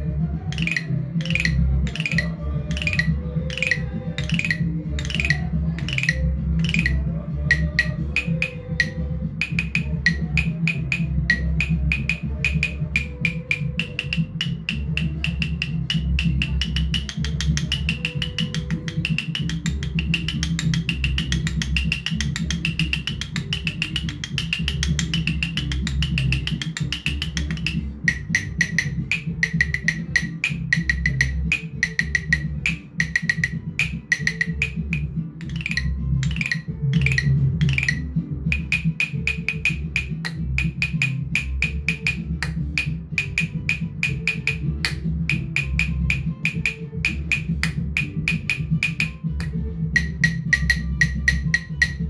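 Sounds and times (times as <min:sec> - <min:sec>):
mallet tapping bamboo pipes: 0:00.0 - 0:52.0
recorded music with low drum beat: 0:00.0 - 0:52.0.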